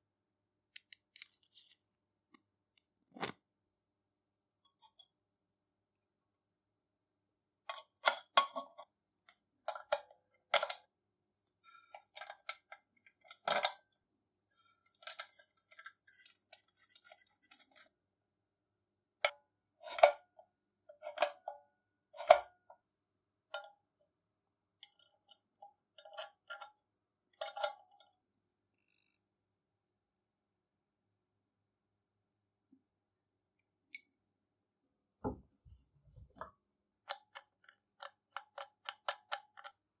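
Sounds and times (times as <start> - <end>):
metal lamp parts clinking: 4.6 - 5.2.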